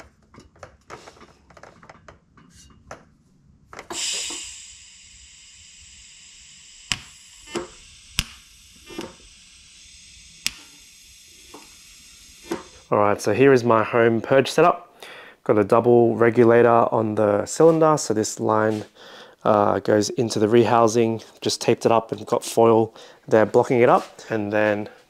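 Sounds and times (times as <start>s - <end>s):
gas hissing from regulator: 3.9s - 12.9s
clicks and taps: 6.9s - 9.1s
sharp clicks: 6.9s - 11.8s.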